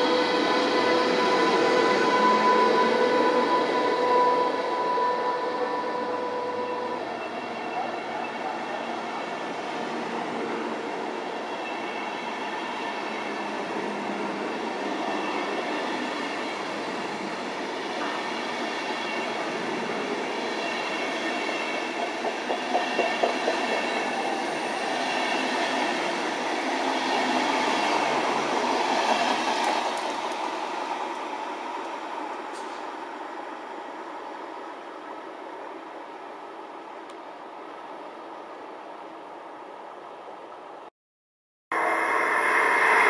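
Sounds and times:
train wheels rumbling on rail: 9.5 - 33.8
wheels clacking over rail joints: 21.9 - 24.4.

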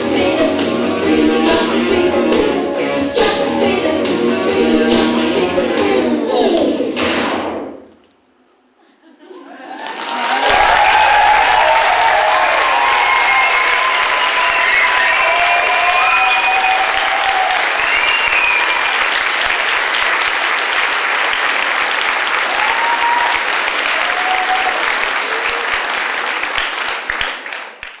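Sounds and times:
people cheering and whooping: 9.5 - 19.5, 22.4 - 26.0
audience applauding: 9.6 - 28.0.

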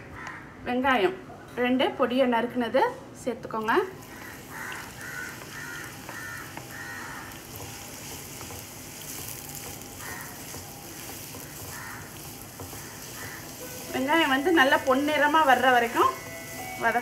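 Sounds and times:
onions sizzling in hot oil: 3.7 - 17.0.

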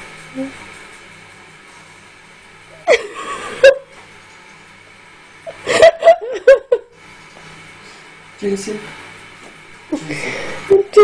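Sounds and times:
person laughing: 2.8 - 3.9, 5.5 - 6.9, 10.0 - 11.0.

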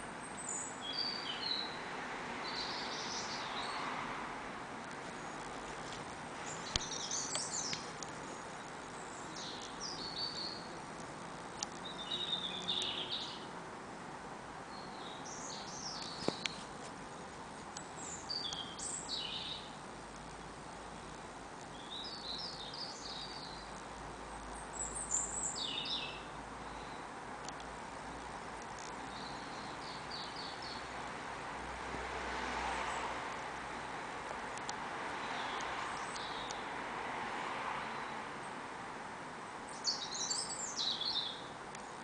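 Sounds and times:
background hiss: 0.0 - 42.0
songbird warbling: 6.5 - 10.7.

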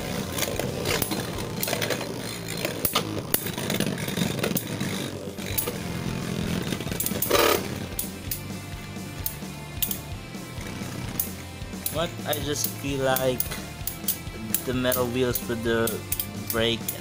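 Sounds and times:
metal wheels clashing: 0.0 - 8.5
spinning tops grinding on plastic: 0.0 - 17.0.

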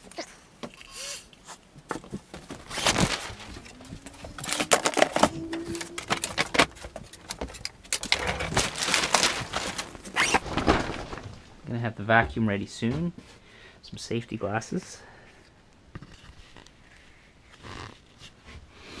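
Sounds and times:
knocks and clicks of handling gear: 1.8 - 9.8
plastic sheeting rustling: 2.3 - 11.8.

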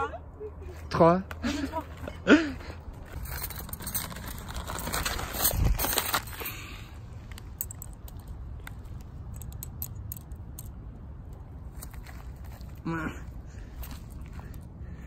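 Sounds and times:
tent bag handling noise: 3.1 - 6.8.

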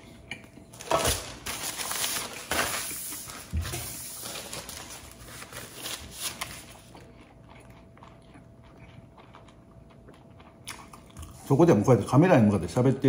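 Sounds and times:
paper napkin rustling: 0.8 - 6.9.

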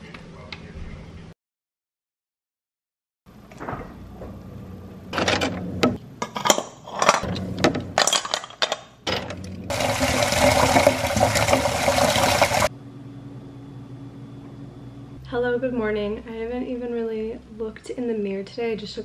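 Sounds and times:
water pouring onto ice: 9.7 - 12.7.

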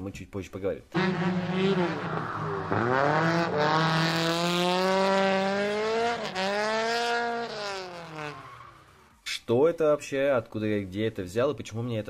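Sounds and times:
car engine revving hard: 1.0 - 8.8.

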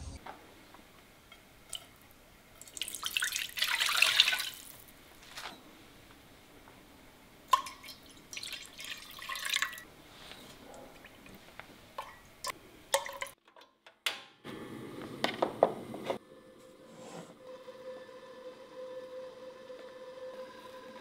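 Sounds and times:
liquid poured into a pot: 2.6 - 4.9, 7.5 - 9.8.

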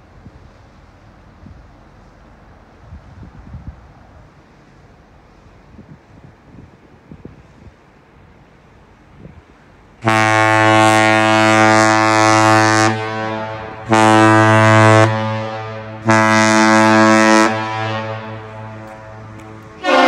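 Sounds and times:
deep ship air horn blasts: 10.0 - 20.0.

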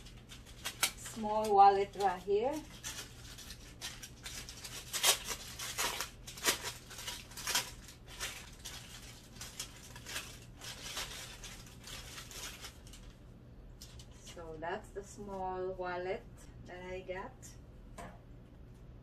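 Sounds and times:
packaging crinkling and rustling: 0.0 - 13.2, 13.8 - 14.2.

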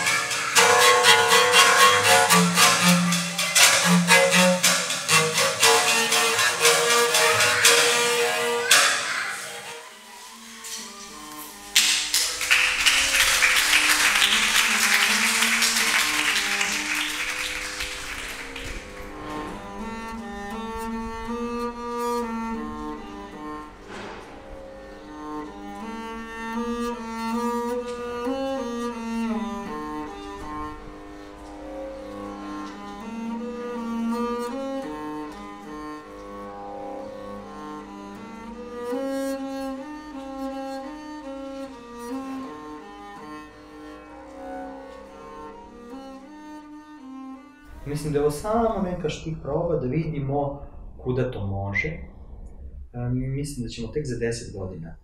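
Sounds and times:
instrumental music: 0.0 - 51.3
bowed strings slow notes: 0.0 - 54.8
audience applause: 11.6 - 20.0.

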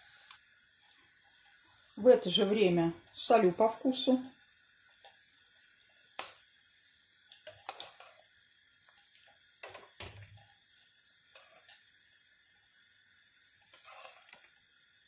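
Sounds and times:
ladle stirring soup: 7.3 - 8.3, 13.5 - 14.6.

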